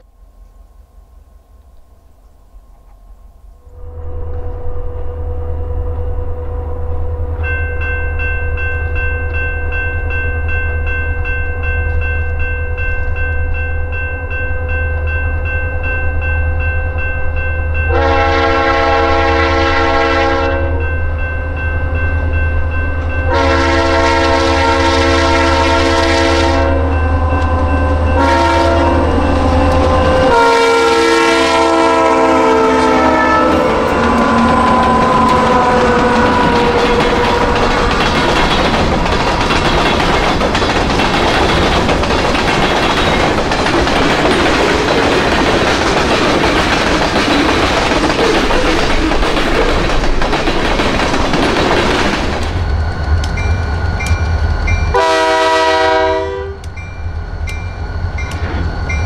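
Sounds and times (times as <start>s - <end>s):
diesel locomotives rumbling: 0.0s - 59.0s
train air horn blasts: 3.6s - 7.8s, 17.9s - 21.0s, 23.2s - 38.0s, 54.9s - 56.7s.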